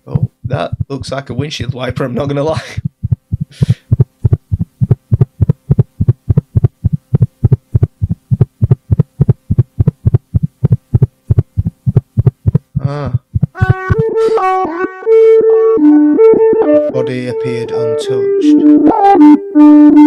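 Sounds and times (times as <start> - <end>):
faint steady hum: 0.0 - 14.5
heartbeat-like thumping: 0.1 - 14.0.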